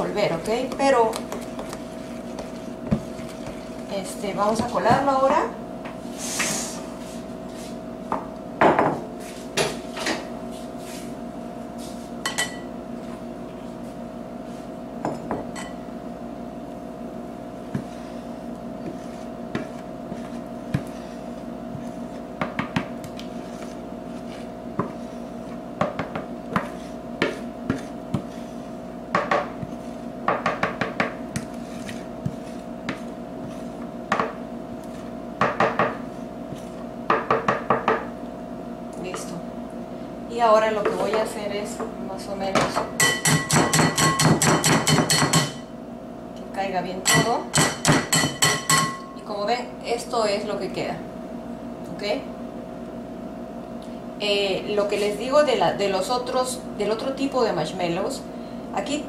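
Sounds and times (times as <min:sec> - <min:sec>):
wooden spoon scraping a sieve: 0:00.0 - 0:05.3, 0:17.7 - 0:22.3, 0:23.1 - 0:25.6, 0:26.5 - 0:28.9, 0:29.5 - 0:30.1, 0:31.4 - 0:33.9
steady hum: 0:00.0 - 0:59.0.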